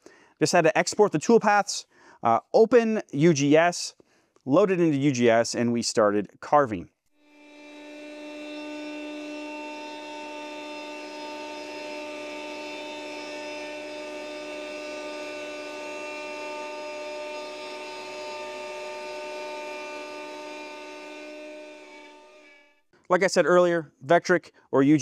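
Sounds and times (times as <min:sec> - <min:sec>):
router bit carving wood: 0:07.2 - 0:22.7
router spindle whining: 0:07.2 - 0:22.8.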